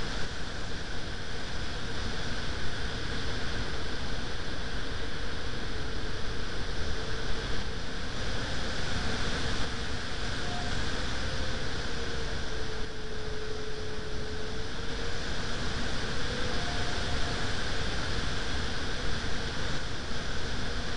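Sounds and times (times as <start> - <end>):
wind noise on microphone: 0.0 - 20.9
faint thin tone: 10.1 - 15.1.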